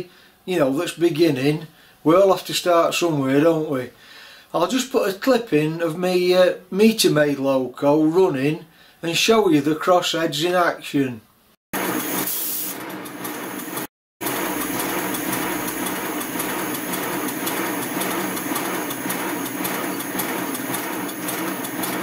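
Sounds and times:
locomotive mechanical running: 0:11.8 - 0:22.0.

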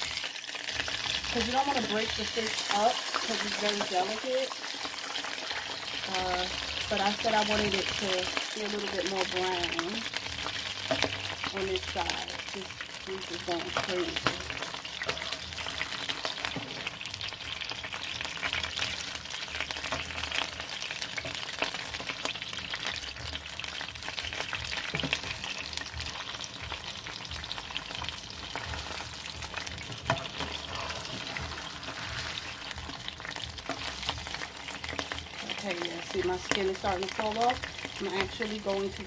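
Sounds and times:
fish sizzling in hot oil: 0:00.0 - 0:39.0
spatula scraping pan: 0:13.2 - 0:17.0, 0:28.4 - 0:36.0.

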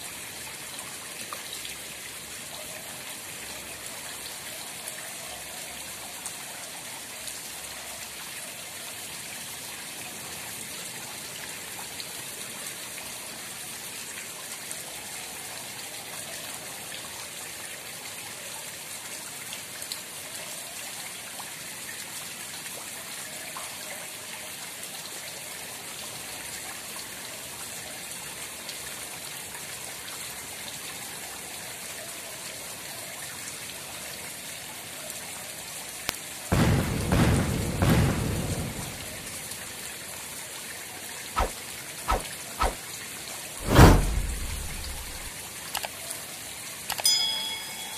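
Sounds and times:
faint drip-like ticks: 0:00.5 - 0:08.3, 0:23.4 - 0:24.0, 0:45.6 - 0:47.1.

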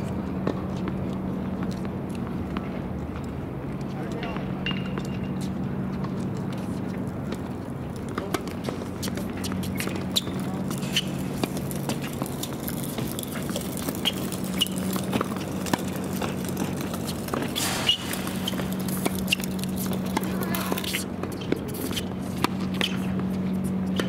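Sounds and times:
racket hitting tennis ball: 0:08.0 - 0:24.0
ball bouncing on hard court: 0:08.1 - 0:24.0.

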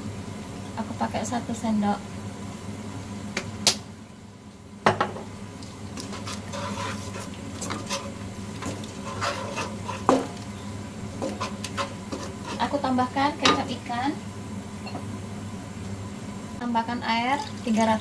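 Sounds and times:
wooden spatula scraping wok: 0:06.0 - 0:13.0.

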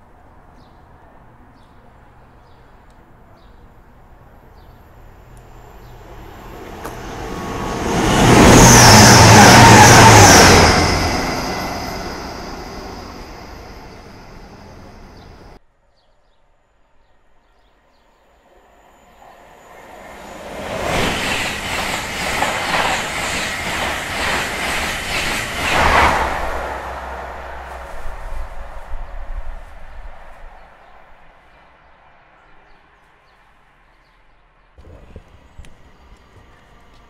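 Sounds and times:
train passing: 0:03.8 - 0:15.6, 0:18.2 - 0:31.5, 0:34.8 - 0:37.0.

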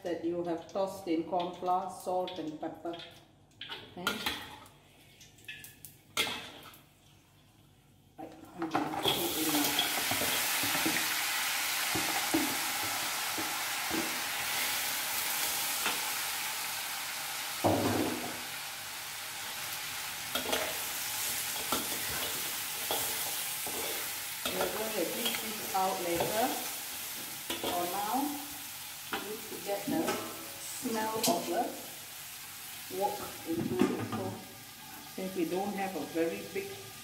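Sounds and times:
food sizzling in hot oil: 0:08.7 - 0:37.0
spatula scraping wok: 0:20.3 - 0:28.0.

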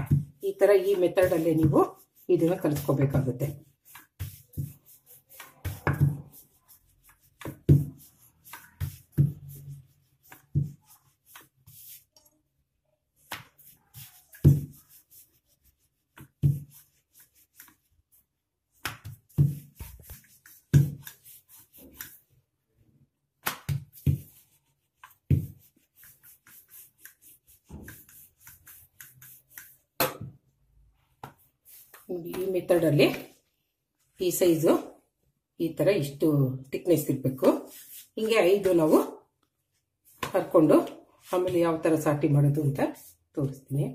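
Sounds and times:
rolling pin rolling dough: 0:00.0 - 0:22.5, 0:23.2 - 0:33.4, 0:37.0 - 0:39.2.

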